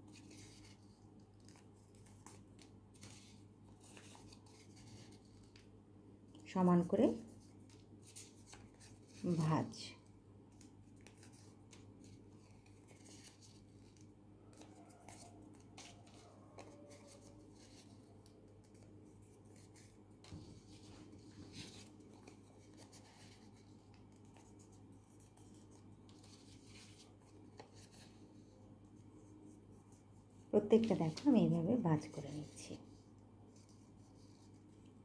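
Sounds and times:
paper rustling and crinkling: 0.0s - 5.7s, 10.5s - 29.3s.

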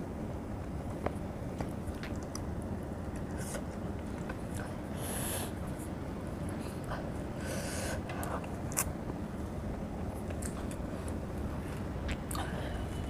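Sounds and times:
low hum: 0.0s - 13.0s
breaths through nose: 4.9s - 5.6s, 7.4s - 8.1s.

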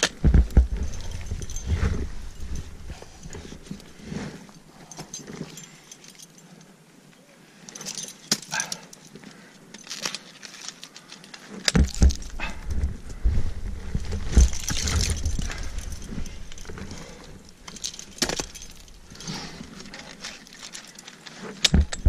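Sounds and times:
carabiner jangling: 0.0s - 6.7s, 7.7s - 13.0s, 13.8s - 22.0s
low rumble on microphone: 0.2s - 4.4s, 11.8s - 19.7s.

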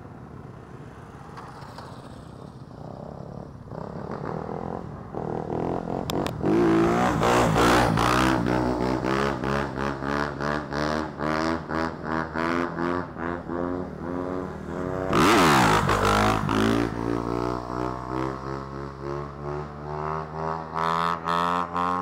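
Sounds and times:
dirt bike engine revving: 15.1s - 17.1s.

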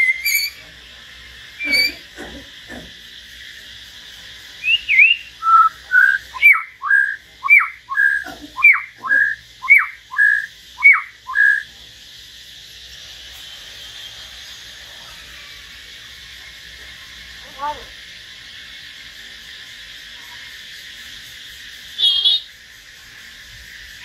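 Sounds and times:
songbird whistling: 0.0s - 0.6s, 1.6s - 2.1s, 4.6s - 11.7s, 22.0s - 22.5s.

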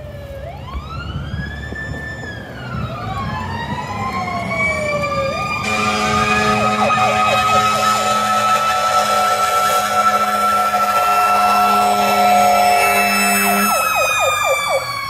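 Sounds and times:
fire engine siren wailing: 0.0s - 15.0s
second siren tone climbing: 0.0s - 15.0s
low many-toned horn blast: 5.6s - 14.1s.

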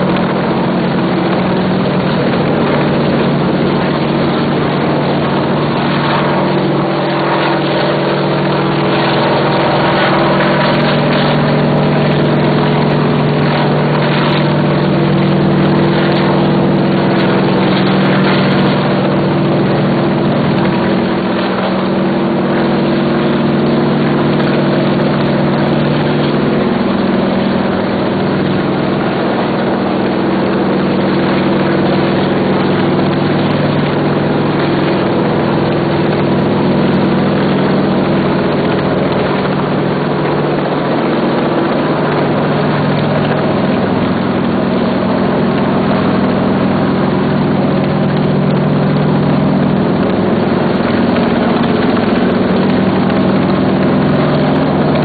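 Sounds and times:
helicopter drone: 0.0s - 55.0s.

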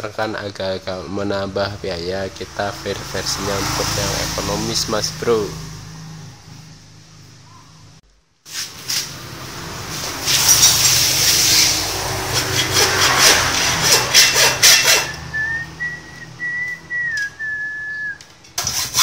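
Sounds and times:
hacksaw rasping through casing: 12.3s - 15.2s, 18.5s - 19.0s
high whistling tone: 15.0s - 18.3s.

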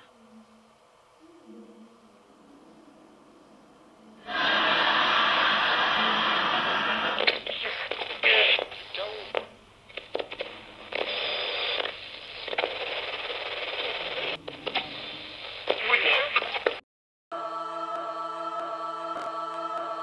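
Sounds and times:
radio static hiss: 0.0s - 16.8s
broadcast voices: 4.2s - 12.6s, 15.7s - 16.8s
radio crackles: 6.7s - 16.8s.

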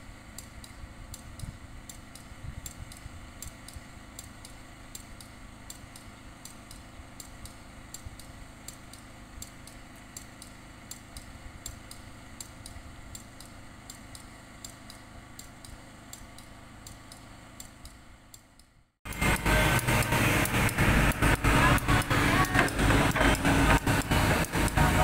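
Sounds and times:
nearby machine engine: 0.0s - 25.0s
light irregular clicking: 0.4s - 18.8s
distant heavy machinery rumble: 19.1s - 25.0s.

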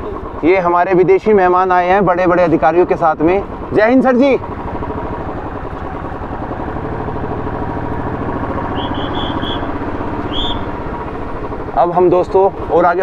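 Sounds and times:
vehicle engine running: 0.0s - 13.0s
short high chirps: 8.7s - 10.7s.

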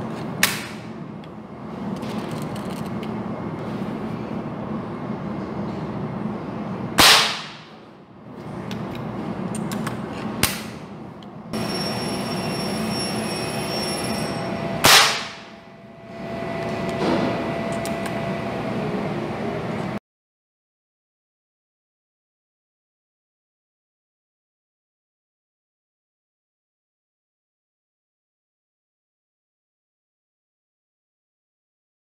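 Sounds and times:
air rifle shots: 7.0s - 7.8s, 14.8s - 15.5s.

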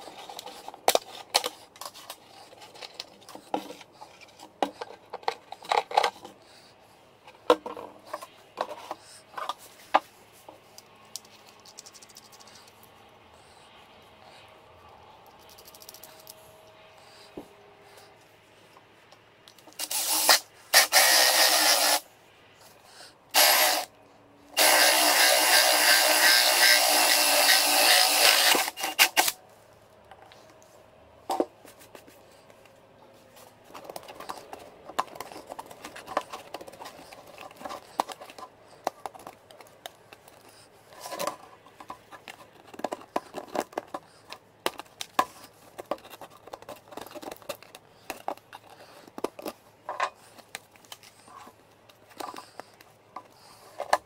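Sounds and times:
plastic hubcap clicks and scraping: 0.0s - 6.4s, 33.7s - 54.0s
power drill cutting plastic: 19.8s - 22.0s, 23.4s - 23.9s, 24.6s - 29.4s.

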